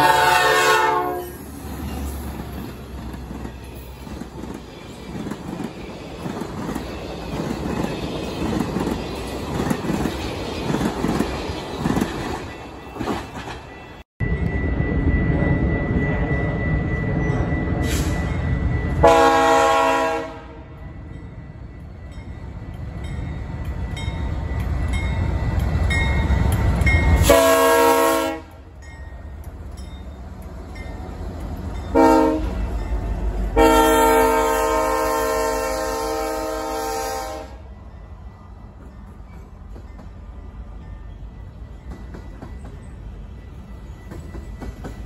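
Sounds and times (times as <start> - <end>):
locomotive horn blasts: 0.0 - 1.4, 19.0 - 20.8, 27.2 - 28.6, 31.9 - 32.7, 33.5 - 37.7.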